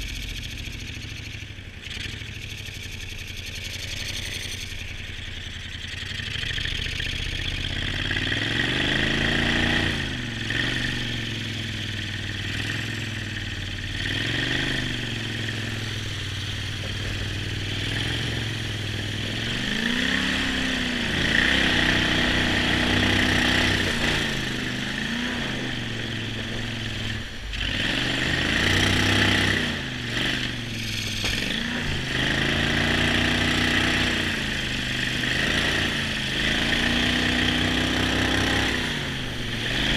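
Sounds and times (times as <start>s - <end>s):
boat motor revving: 0.0s - 39.9s.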